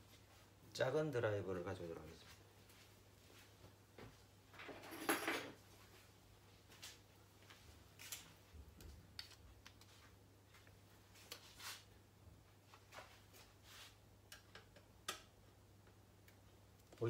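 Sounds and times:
faint clicks of handling computer parts: 8.0 - 11.6.

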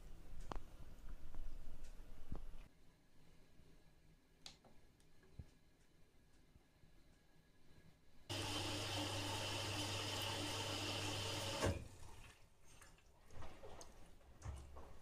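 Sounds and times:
washing machine drum turning laundry: 8.3 - 12.4
water rushing into washing machine: 8.3 - 14.1.

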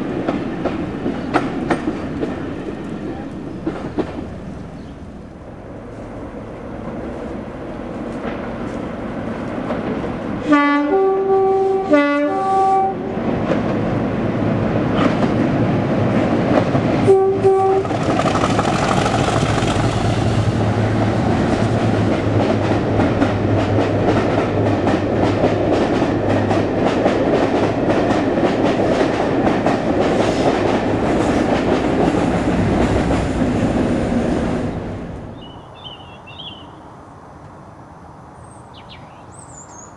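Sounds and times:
locomotive two-tone horn: 10.4 - 13.2, 17.0 - 17.9
locomotive engine under load: 17.7 - 33.0
wheels clattering over rail joints: 17.7 - 33.5.

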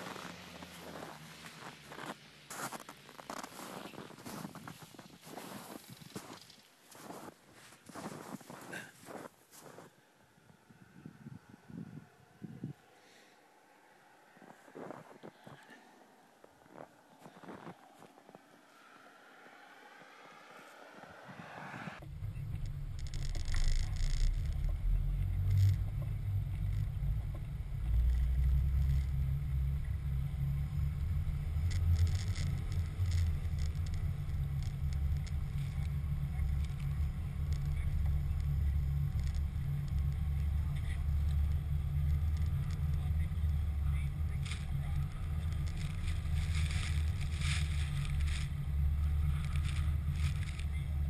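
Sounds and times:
truck driving through snow rumble: 0.0 - 9.8, 10.9 - 51.0
light clicks and scrapes: 22.5 - 29.2, 31.6 - 51.0.

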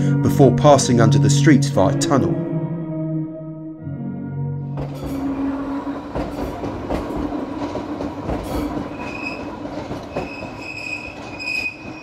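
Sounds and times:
train wheels rumbling on rails: 4.7 - 12.0
train wheels squealing on curve: 8.4 - 12.0.

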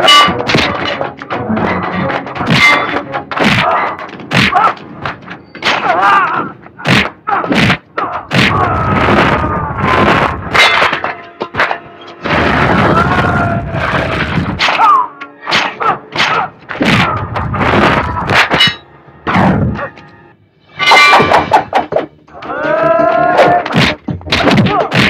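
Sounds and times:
background music: 0.0 - 25.0
punch and thud sound effects: 6.9 - 10.4, 16.2 - 18.4.

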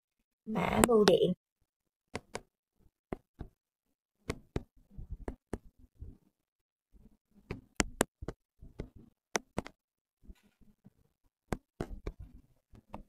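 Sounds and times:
on-screen keyboard typing taps: 2.1 - 2.5, 7.5 - 9.8.

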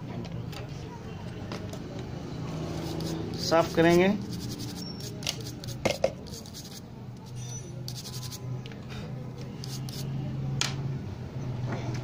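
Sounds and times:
toothbrush scrubbing scratchily: 2.7 - 8.4, 9.6 - 10.1.

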